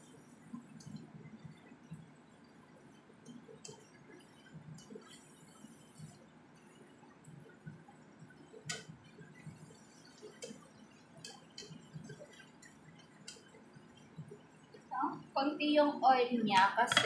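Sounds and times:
spatula clicking against pan: 0:08.7 - 0:08.9.

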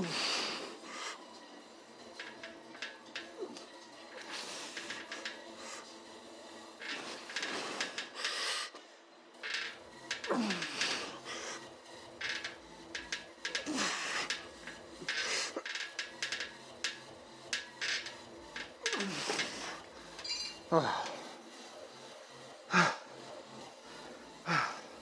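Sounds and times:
dumbbell plates clicking: 0:02.2 - 0:05.4, 0:06.8 - 0:08.4, 0:09.4 - 0:11.2, 0:12.2 - 0:21.1.

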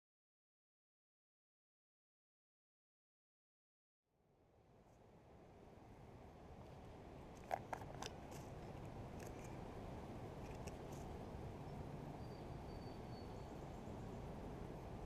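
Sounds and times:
low outdoor rumble: 0:04.4 - 0:15.0
plastic jar lid twisting open: 0:07.4 - 0:09.6, 0:10.4 - 0:11.0
faint high whistle: 0:12.2 - 0:13.5.

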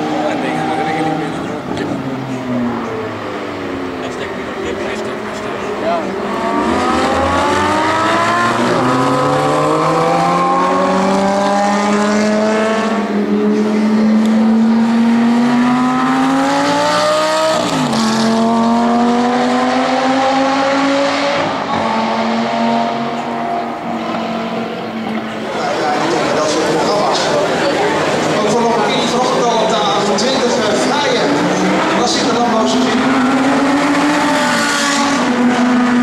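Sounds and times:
sports car exhaust revving: 0:00.0 - 0:26.8.

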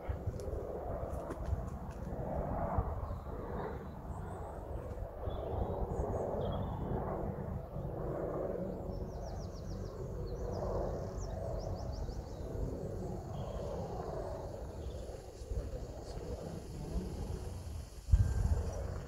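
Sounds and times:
wind buffeting microphone: 0:00.0 - 0:19.0
small birds singing: 0:03.0 - 0:07.0, 0:07.6 - 0:17.5.

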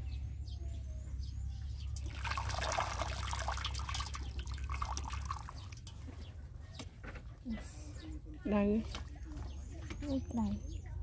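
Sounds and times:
liquid splashing and trickling: 0:01.9 - 0:06.2.

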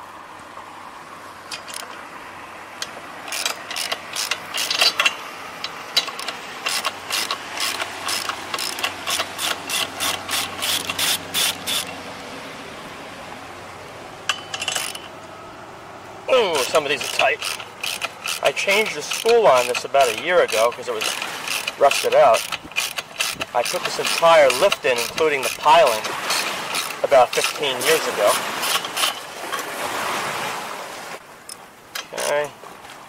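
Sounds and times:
boat engine droning: 0:00.0 - 0:32.8
hand ratchet clicking: 0:03.3 - 0:12.0, 0:14.3 - 0:15.1, 0:16.6 - 0:27.7, 0:28.3 - 0:29.2.

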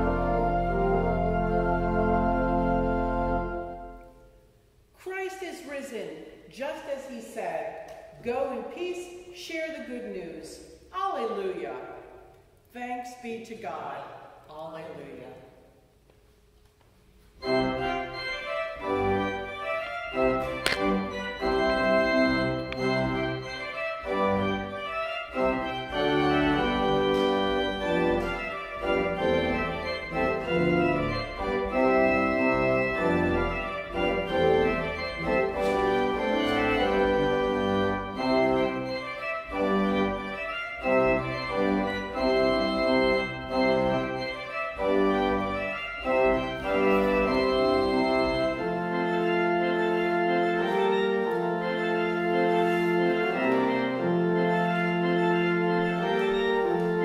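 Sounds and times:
church organ playing chords: 0:00.0 - 0:04.7, 0:17.2 - 0:57.0.

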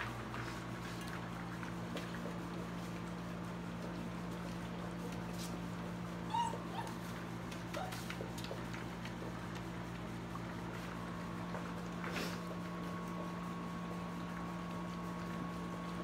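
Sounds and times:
puppies whimpering and squeaking: 0:06.2 - 0:08.2.

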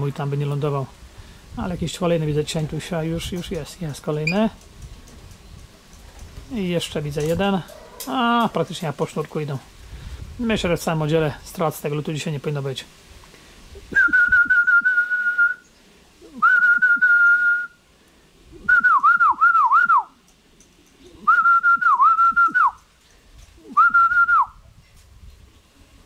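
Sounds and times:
person whistling: 0:13.9 - 0:15.6, 0:16.4 - 0:17.8, 0:18.7 - 0:20.1, 0:21.3 - 0:22.8, 0:23.8 - 0:24.5.

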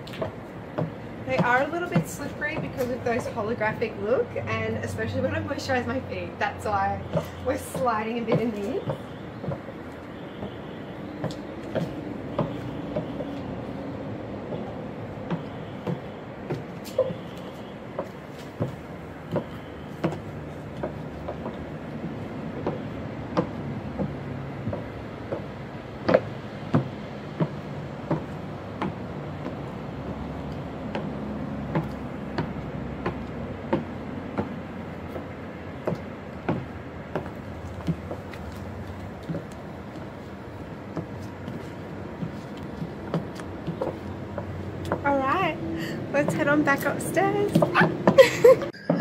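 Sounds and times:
high-heel footsteps clicking: 0:00.0 - 0:49.0
steady background noise: 0:00.0 - 0:49.0.

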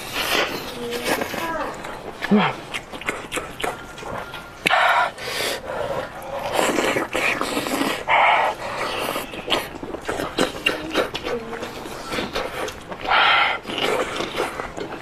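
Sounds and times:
wet slurping and chewing: 0:00.0 - 0:15.0.

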